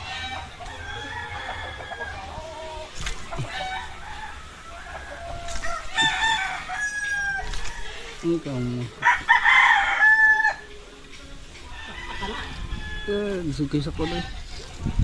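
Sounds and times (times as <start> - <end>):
rooster crowing: 0.0 - 2.8, 3.4 - 8.2, 9.0 - 10.7, 11.7 - 13.3
chickens clucking: 0.0 - 15.0.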